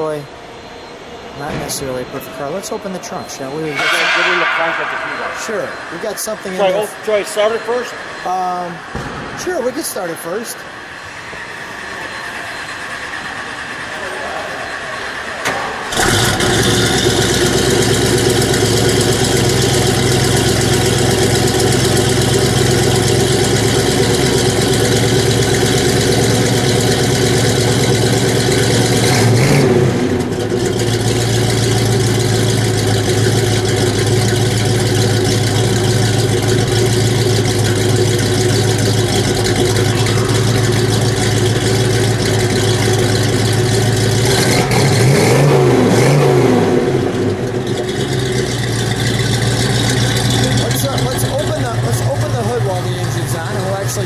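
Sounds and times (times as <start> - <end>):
car engine idling and revving: 14.7 - 54.0.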